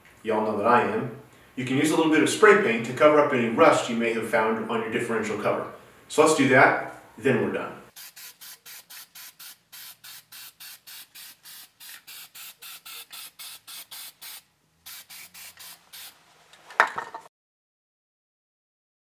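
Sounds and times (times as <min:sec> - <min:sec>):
spray paint can hissing: 0:07.9 - 0:16.2.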